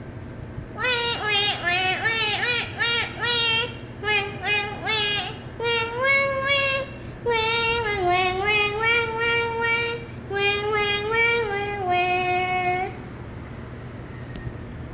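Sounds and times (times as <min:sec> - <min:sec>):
parakeet singing: 0:00.8 - 0:07.6.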